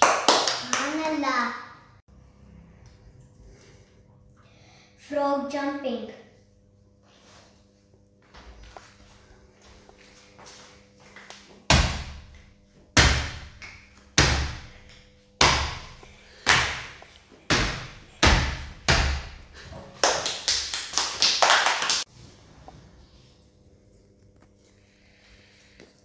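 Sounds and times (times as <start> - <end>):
children clapping: 0.0 - 1.3, 20.0 - 22.1.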